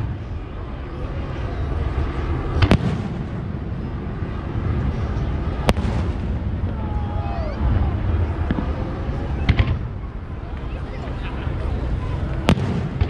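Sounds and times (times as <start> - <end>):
steady low rumble: 0.0 - 13.0
fireworks bursting bangs: 2.6 - 3.8, 5.5 - 6.9, 8.4 - 10.0, 12.4 - 13.0.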